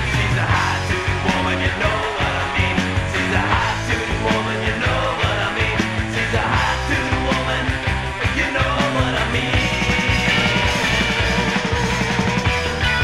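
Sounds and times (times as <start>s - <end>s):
hard rock band playing: 0.0s - 13.0s.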